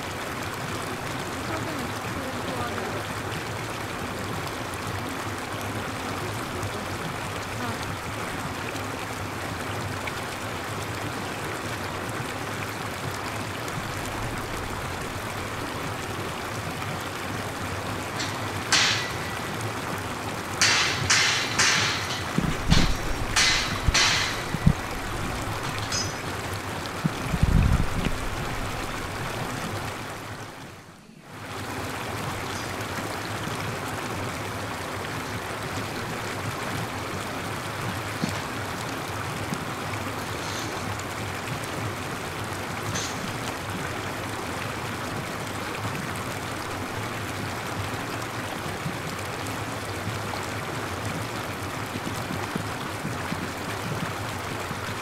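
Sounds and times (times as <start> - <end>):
running water hissing: 1.1 - 44.9
low bump: 20.6 - 26.4.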